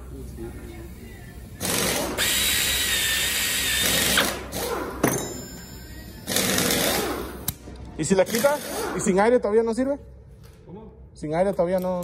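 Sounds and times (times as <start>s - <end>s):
pneumatic tool whirring: 1.6s - 7.6s, 8.3s - 9.1s.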